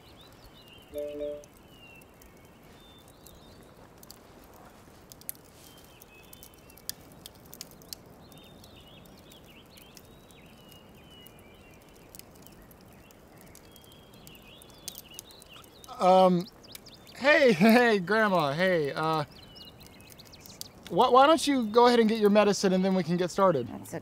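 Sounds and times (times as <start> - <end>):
faint bird chirps: 0.0 - 3.7, 18.4 - 22.1
steady low hiss: 0.0 - 24.0.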